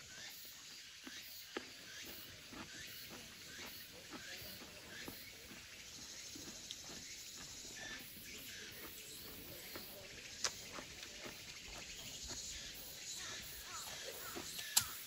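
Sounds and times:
footsteps on stone steps: 0:00.9 - 0:15.0
sharp click: 0:14.5 - 0:15.0.

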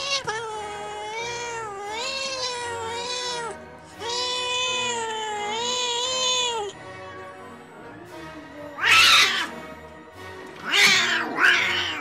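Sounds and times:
cat yowling: 0:00.0 - 0:06.7, 0:08.8 - 0:09.6, 0:10.6 - 0:12.0.

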